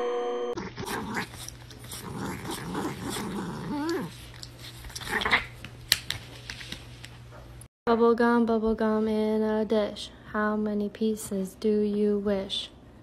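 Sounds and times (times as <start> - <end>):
pet growling: 0.6 - 5.6.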